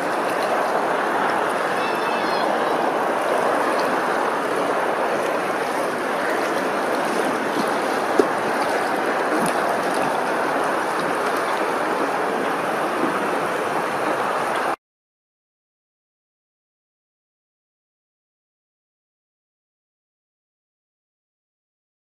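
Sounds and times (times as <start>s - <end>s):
rushing lapping water: 0.0s - 14.8s.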